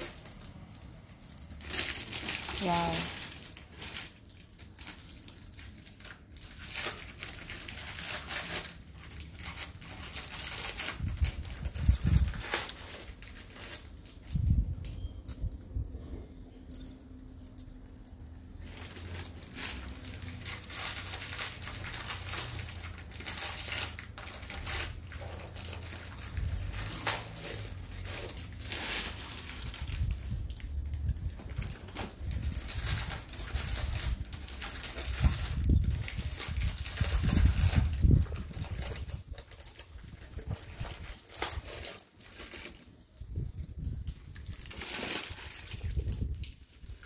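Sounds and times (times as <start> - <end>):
glass bangles clinking: 0.0 - 8.1, 9.0 - 13.8, 16.4 - 36.0, 36.6 - 44.9
low rumble of handling: 9.0 - 41.9.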